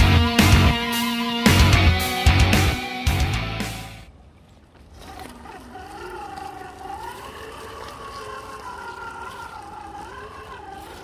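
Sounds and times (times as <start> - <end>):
electric motor whining: 5.0 - 11.0.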